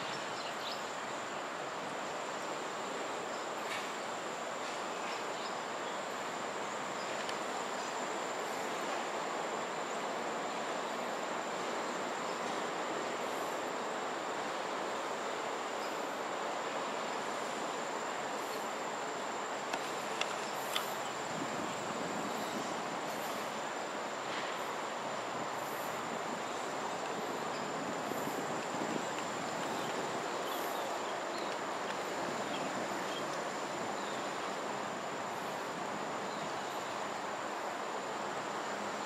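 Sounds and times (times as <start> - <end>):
faint ticks: 7.1 - 7.9, 19.7 - 21.2.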